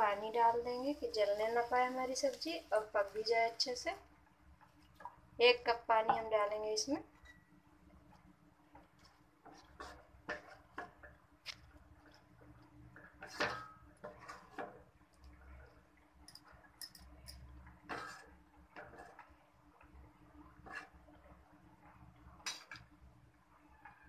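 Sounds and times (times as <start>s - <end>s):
low steady hum: 0.0s - 24.0s
spatula scraping a pan: 8.8s - 15.8s, 17.8s - 19.4s, 20.5s - 21.3s.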